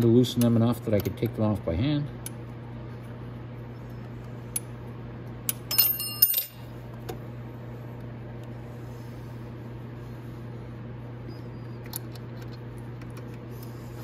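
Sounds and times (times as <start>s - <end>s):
steady low hum: 0.0s - 14.0s
metal bolts clinking: 5.7s - 6.6s.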